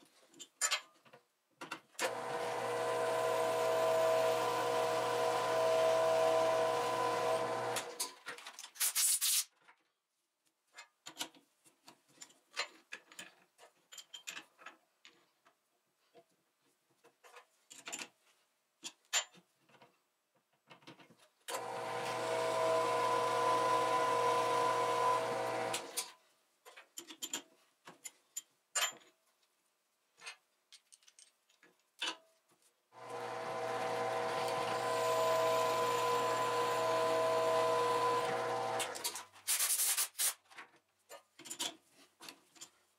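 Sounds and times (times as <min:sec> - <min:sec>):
drill press drilling steel: 0:02.0 - 0:08.2, 0:21.5 - 0:26.1, 0:33.0 - 0:39.3.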